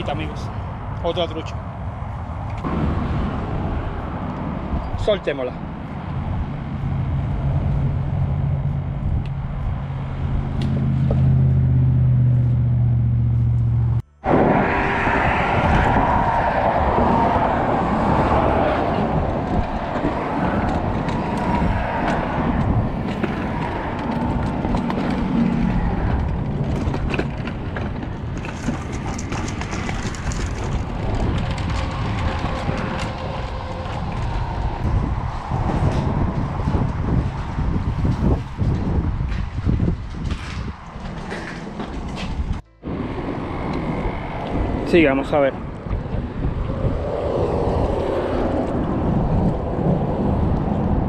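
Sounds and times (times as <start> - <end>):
low engine drone: 0.0 - 39.2, 41.5 - 51.0
traffic rushing: 0.0 - 51.0
wind on microphone: 13.4 - 51.0.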